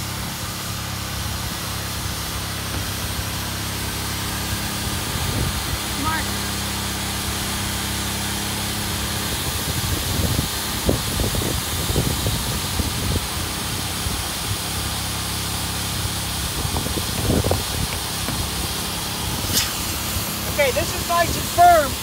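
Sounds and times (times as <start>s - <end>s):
electric air pump hissing: 0.0s - 22.0s
low thumps: 17.0s - 19.6s.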